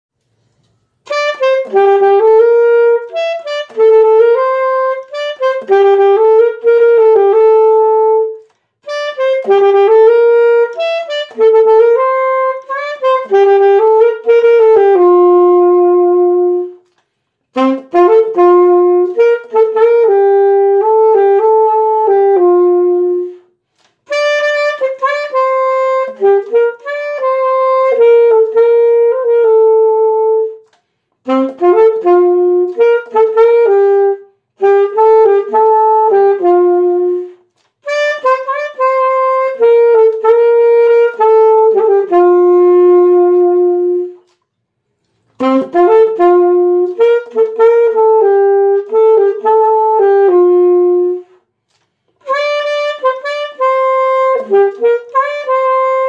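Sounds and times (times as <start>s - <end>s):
solo saxophone melody: 0.3s - 56.0s.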